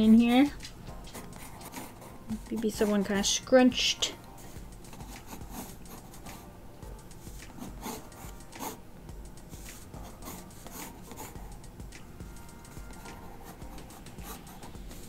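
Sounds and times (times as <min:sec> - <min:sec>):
pencil scratching on paper: 0:00.0 - 0:03.6, 0:04.4 - 0:06.5, 0:07.1 - 0:08.8, 0:09.5 - 0:11.6, 0:12.6 - 0:15.0.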